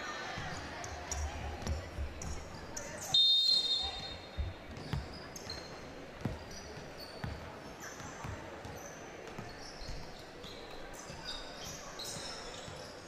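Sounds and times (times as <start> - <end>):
sneakers squeaking: 0.2 - 13.0
basketball bouncing on court: 0.4 - 2.7, 4.3 - 10.8.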